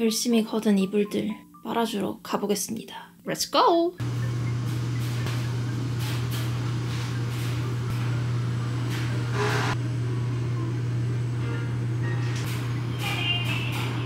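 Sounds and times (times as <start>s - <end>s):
low machine hum: 4.0s - 14.0s.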